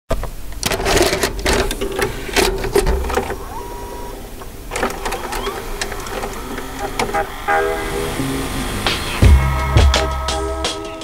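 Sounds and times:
steady hum: 0.2s - 10.8s
machine clattering: 0.6s - 7.5s.

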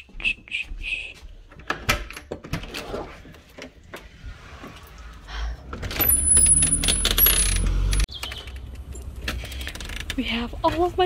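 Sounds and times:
outdoor low rumble: 3.8s - 9.9s.

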